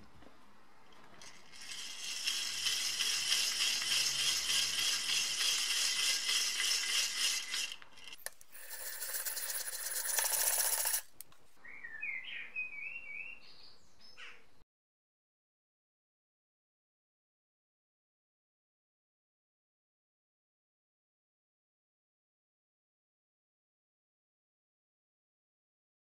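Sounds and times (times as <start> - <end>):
hand drill gears whirring: 1.2 - 11.1.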